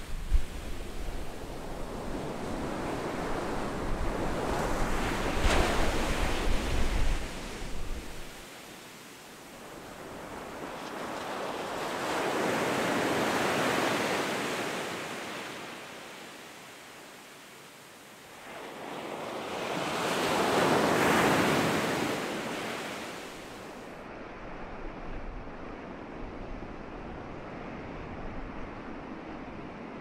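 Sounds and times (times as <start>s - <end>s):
wind rumble on microphone: 0.0s - 8.4s, 24.0s - 30.0s
surf washing up a beach: 0.0s - 30.0s.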